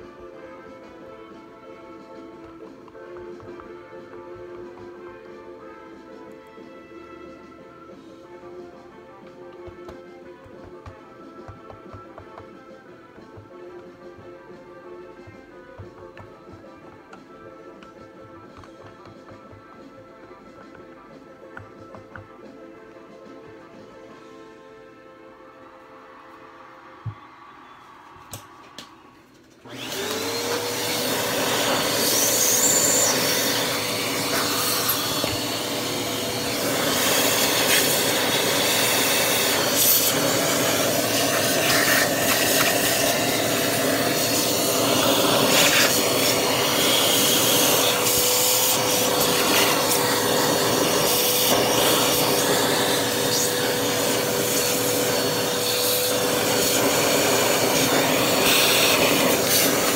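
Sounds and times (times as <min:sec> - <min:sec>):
vacuum nozzle knocking and rubbing: 0:09.5 - 0:14.3, 0:15.3 - 0:17.3, 0:29.9 - 0:59.9
vacuum cleaner motor whine: 0:29.6 - 0:59.9.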